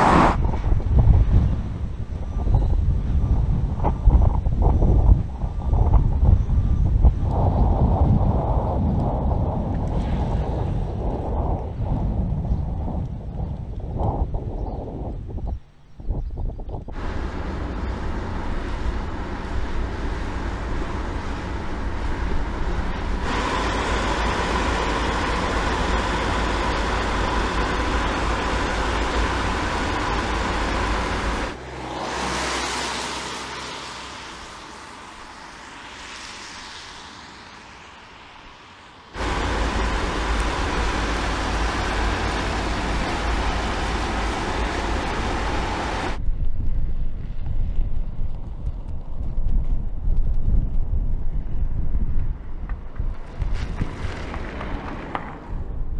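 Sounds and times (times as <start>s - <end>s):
tyre and wind rumble: 0.0s - 32.4s, 34.4s - 55.9s
faint steady whine: 32.8s - 46.3s.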